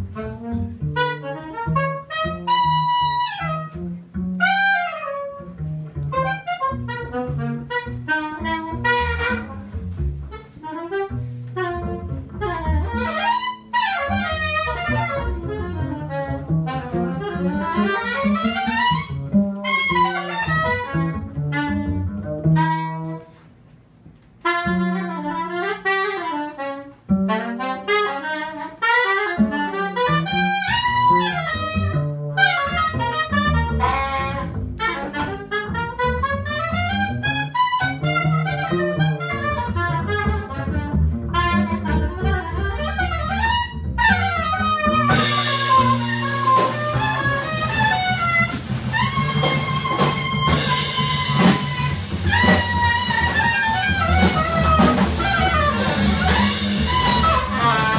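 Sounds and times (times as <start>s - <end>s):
drums: 0.0s - 23.4s, 29.2s - 37.0s, 37.6s - 57.9s
soprano saxophone: 0.0s - 23.5s, 24.4s - 57.9s
double bass: 0.0s - 57.9s.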